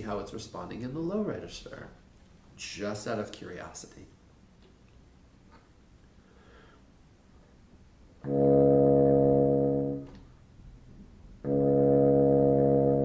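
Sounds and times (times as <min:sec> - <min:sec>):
bassoon playing low notes: 0:08.2 - 0:10.1, 0:11.4 - 0:13.0.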